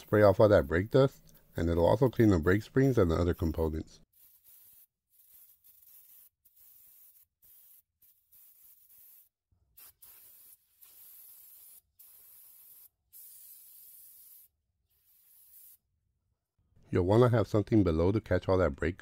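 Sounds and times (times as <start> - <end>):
aerosol spray hissing: 4.0 - 15.9.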